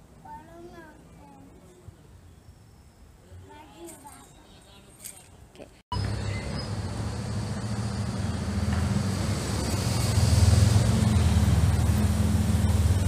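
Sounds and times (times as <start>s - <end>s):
road noise: 3.0s - 13.0s
vehicle engine running: 5.9s - 13.0s.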